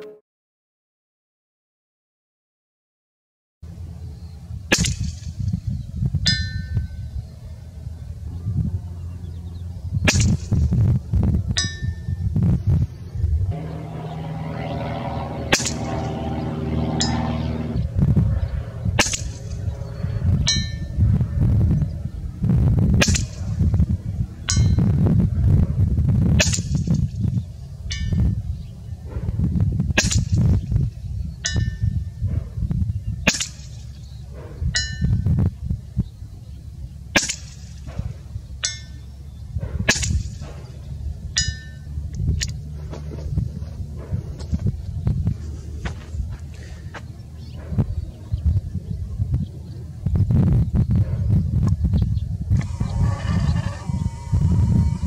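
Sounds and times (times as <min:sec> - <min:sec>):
low wind rumble: 0:03.6 - 0:55.0
steady low hum: 0:03.6 - 0:55.0
air rifle shots: 0:15.2 - 0:17.7, 0:19.0 - 0:19.7, 0:23.0 - 0:23.6, 0:37.2 - 0:38.3
pellet dinging on steel target: 0:33.3 - 0:33.9, 0:37.2 - 0:39.0, 0:39.9 - 0:40.6.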